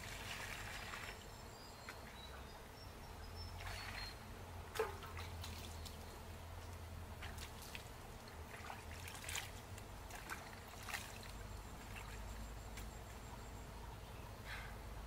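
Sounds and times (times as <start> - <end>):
water trickling: 0.0 - 2.3, 3.6 - 13.4
hands splashing water in basin: 8.5 - 11.3.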